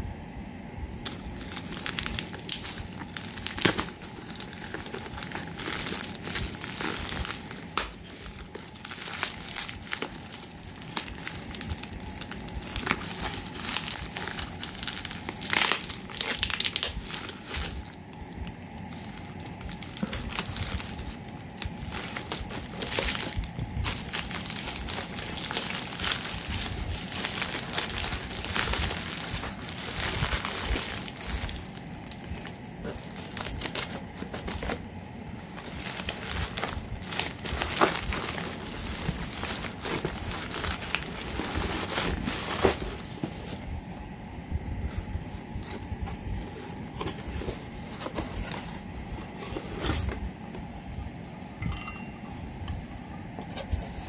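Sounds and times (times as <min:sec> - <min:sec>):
plastic envelope crinkling: 0:01.0 - 0:43.6.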